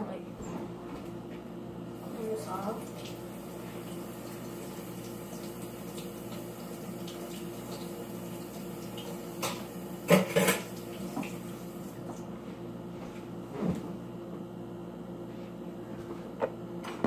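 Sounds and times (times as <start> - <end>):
kitchen tap running: 2.0 - 12.1.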